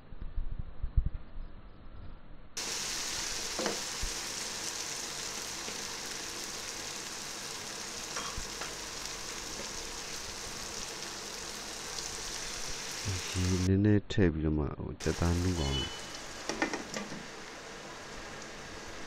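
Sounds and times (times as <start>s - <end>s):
chicken sizzling in oil: 2.6s - 13.7s, 15.0s - 19.0s.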